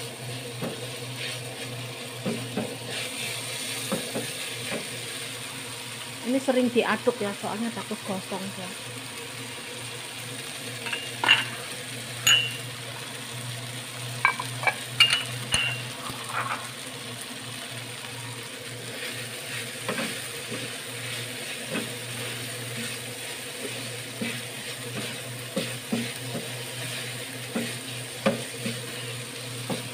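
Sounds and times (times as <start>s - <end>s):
food sizzling in oil: 0.0s - 29.9s
wooden spatula scraping pan: 16.0s - 16.7s.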